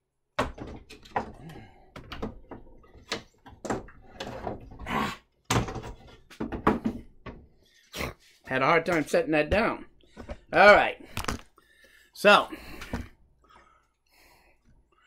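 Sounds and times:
wooden door knocking and thunking: 0.4 - 4.8, 5.5 - 7.5.

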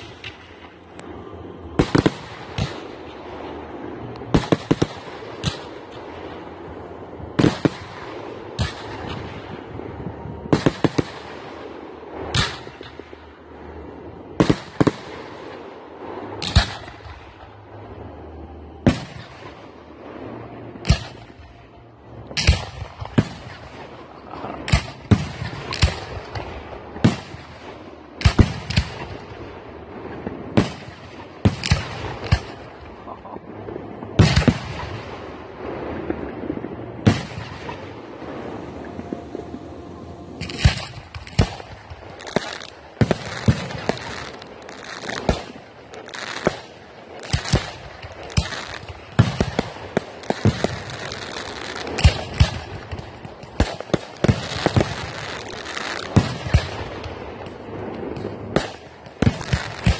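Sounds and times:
steady background noise: 0.0 - 59.9.

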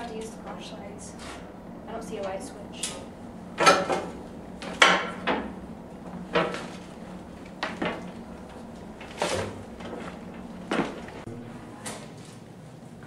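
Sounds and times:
footsteps going down stairs: 3.5 - 11.3.

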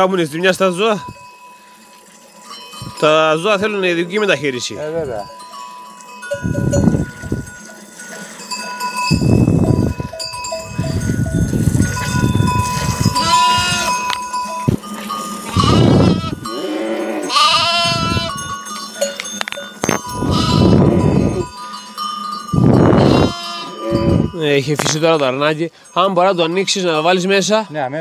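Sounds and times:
animal neck bells clanking: 0.0 - 28.0
animals rustling and shuffling: 0.5 - 25.3
sheep bleating: 13.0 - 14.2, 15.5 - 18.4, 20.2 - 21.5, 22.9 - 24.3.

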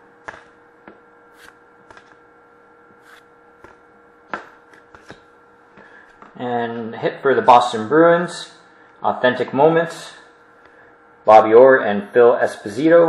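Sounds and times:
faint steady hum: 0.0 - 13.0
trading cards flipped by hand: 1.4 - 2.2, 3.0 - 5.3.

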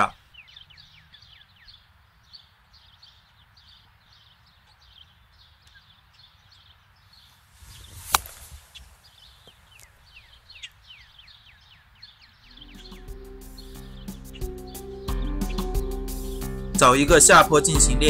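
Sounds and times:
club swishing through grass: 7.6 - 9.0
golf club hitting ball: 8.0 - 8.5.

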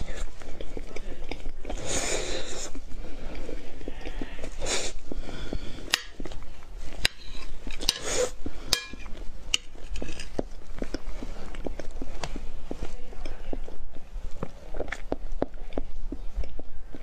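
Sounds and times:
soft chewing: 0.0 - 17.0
metal spoon clinking on plate: 8.7 - 9.7.

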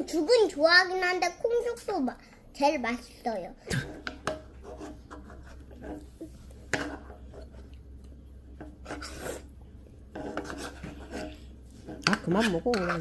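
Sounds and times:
metal spoon scraping ceramic bowl: 4.0 - 7.7, 8.6 - 9.5, 10.1 - 13.0.

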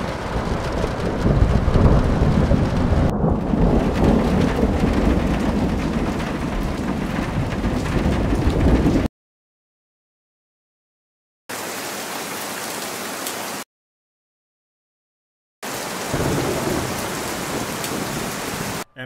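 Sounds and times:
heavy rain: 0.0 - 9.1, 11.5 - 13.6, 15.6 - 18.9
thunder rumbling: 0.0 - 9.1, 16.0 - 18.9.

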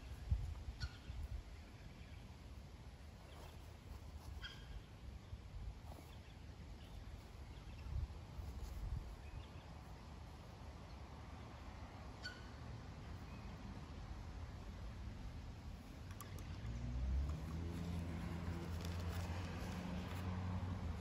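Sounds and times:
wind rumble on microphone: 0.0 - 1.6, 7.6 - 9.6
faint bird calls: 3.2 - 9.7.

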